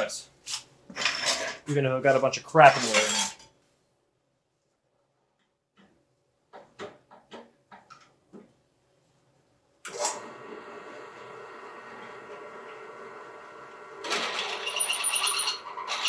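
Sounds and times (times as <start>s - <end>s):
drill press motor humming: 9.9s - 16.0s.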